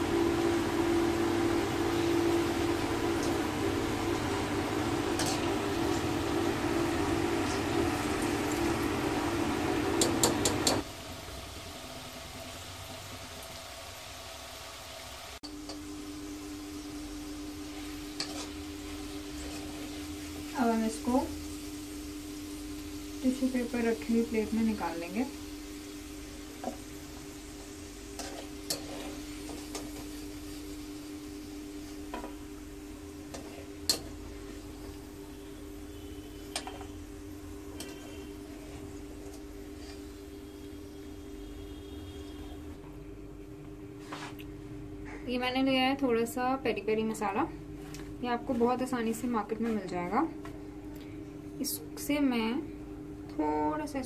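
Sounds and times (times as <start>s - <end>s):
okra deep-frying in sizzling oil: 0.0s - 50.6s
steady mechanical hum: 0.0s - 54.0s.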